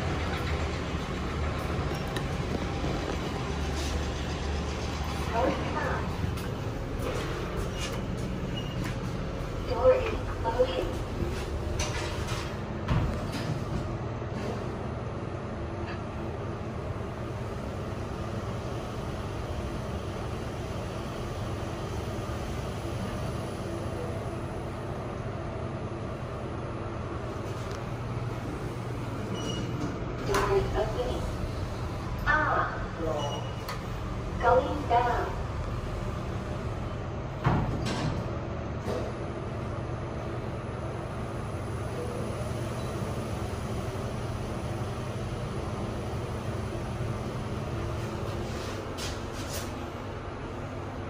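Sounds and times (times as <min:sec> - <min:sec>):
lift doors sliding shut: 0:00.0 - 0:09.3, 0:28.6 - 0:32.1, 0:37.3 - 0:39.2
lift car hum and rumble: 0:00.0 - 0:51.0.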